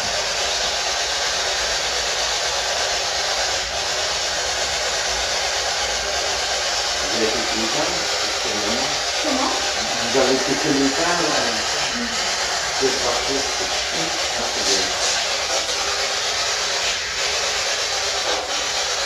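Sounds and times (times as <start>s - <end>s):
radio static hiss: 5.8s - 19.0s.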